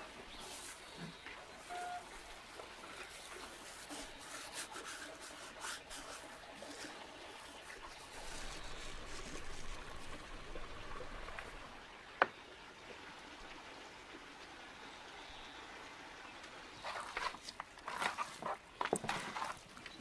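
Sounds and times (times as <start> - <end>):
dry herbs rustling: 0.0 - 10.5, 16.8 - 20.0.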